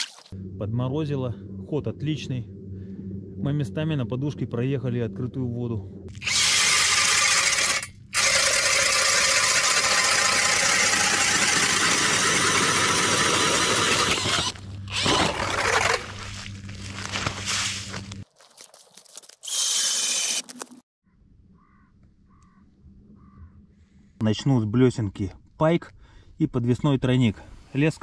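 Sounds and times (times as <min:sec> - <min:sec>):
cordless drill spinning ice auger: 0:06.2 - 0:16.3, 0:19.4 - 0:20.6.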